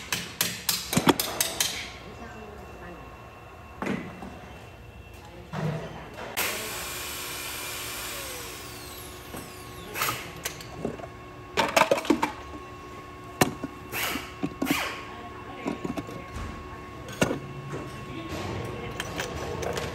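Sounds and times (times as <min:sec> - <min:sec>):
steady hum: 0:00.0 - 0:19.9
metal parts knocking and clinking: 0:18.6 - 0:19.9.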